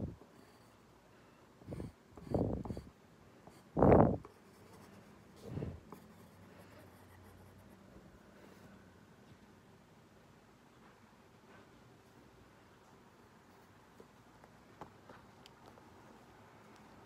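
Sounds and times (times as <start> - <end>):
faint room hiss: 0.0 - 17.0
pencil scratching on paper: 1.6 - 2.9, 3.5 - 7.9.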